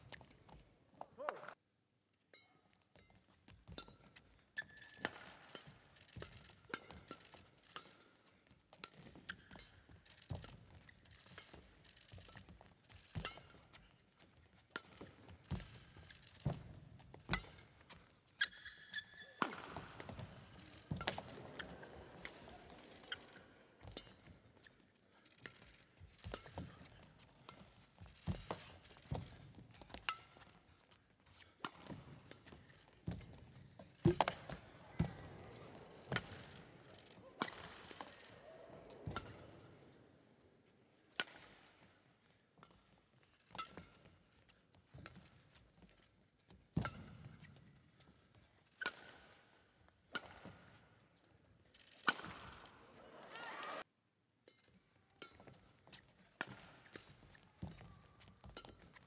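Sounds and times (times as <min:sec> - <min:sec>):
shoes squeaking on floor: 0:02.9 - 0:39.7, 0:55.2 - 0:59.0
racket hitting shuttlecock: 0:03.6 - 0:24.8, 0:26.2 - 0:40.1, 0:41.2 - 0:41.9, 0:46.7 - 0:47.7, 0:48.8 - 0:49.4, 0:50.1 - 0:51.0, 0:52.0 - 0:53.8, 0:54.4 - 0:59.0
crowd noise: 0:19.4 - 0:23.8, 0:34.3 - 0:40.9, 0:52.4 - 0:53.8.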